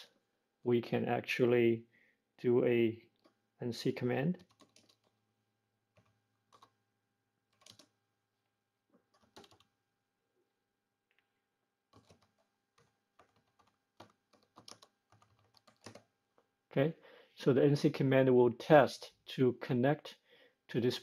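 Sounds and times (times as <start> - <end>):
typing on computer keyboard: 4.4 - 5.2, 5.9 - 6.8, 7.5 - 8.0, 9.1 - 9.7, 11.9 - 16.1.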